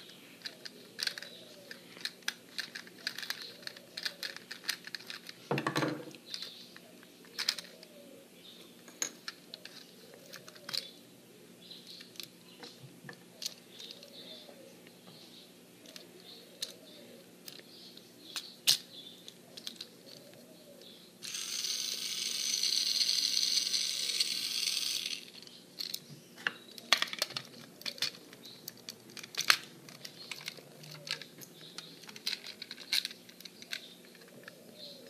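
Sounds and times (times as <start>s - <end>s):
small plastic clicks: 0.4s - 5.4s
toy motor whirring: 0.4s - 5.4s, 21.2s - 26.0s.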